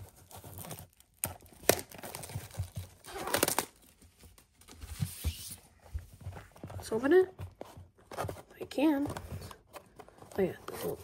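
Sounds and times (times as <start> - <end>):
plastic seal crinkling and tearing: 0.0 - 4.8.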